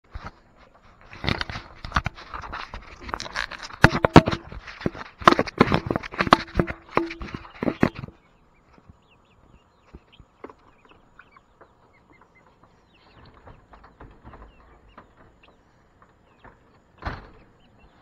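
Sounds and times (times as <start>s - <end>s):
camera scraping and rubbing: 0.1s - 8.2s.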